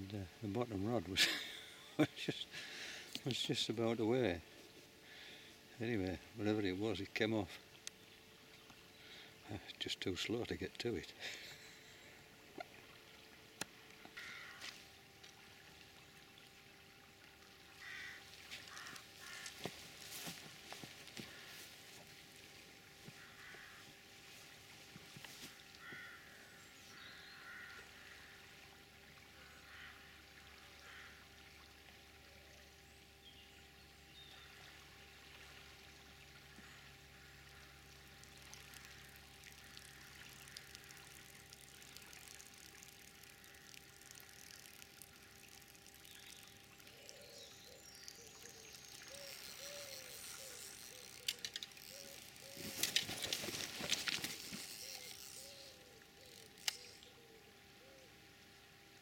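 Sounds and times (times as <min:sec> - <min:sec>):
river water trickling: 0:00.0 - 0:59.0
rustling and sharp clicks: 0:49.3 - 0:55.4.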